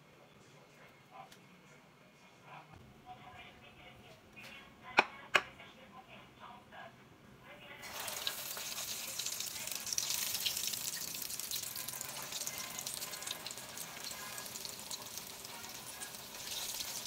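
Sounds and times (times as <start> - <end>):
oil sizzling in a frying pan: 7.8 - 17.0.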